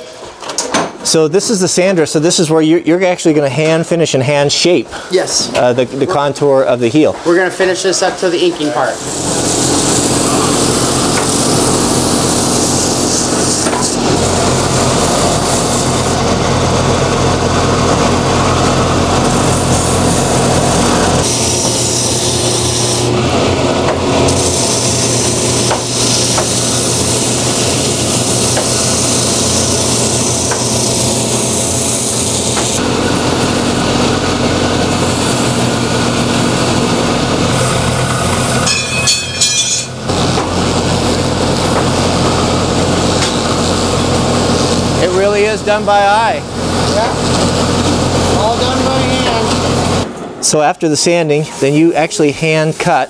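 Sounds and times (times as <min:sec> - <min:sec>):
motor hum: 0:08.7 - 0:50.3
sander grinding leather heel: 0:08.8 - 0:50.0.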